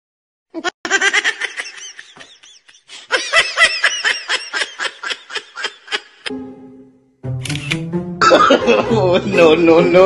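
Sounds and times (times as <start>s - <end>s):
high-pitched laughter: 0.6s - 6.3s.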